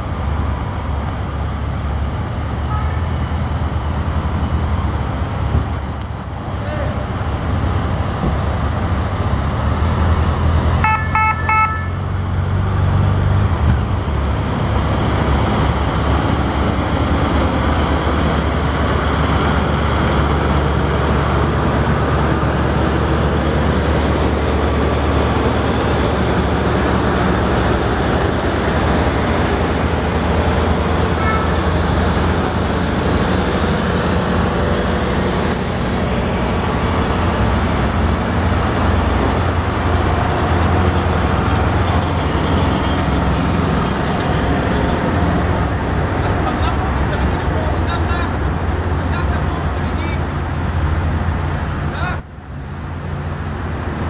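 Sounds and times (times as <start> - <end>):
truck engine and tyre rumble: 0.0 - 54.0
truck horn: 2.7 - 3.2, 10.8 - 12.2, 31.1 - 31.8.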